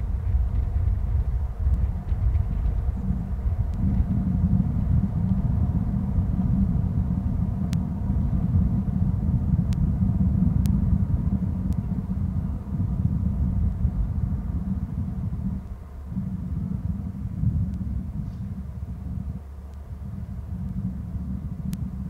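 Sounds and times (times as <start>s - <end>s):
steady low rumbling noise: 0.0s - 22.0s
faint sharp clicks: 10.6s - 10.8s, 19.7s - 19.9s, 21.7s - 21.9s.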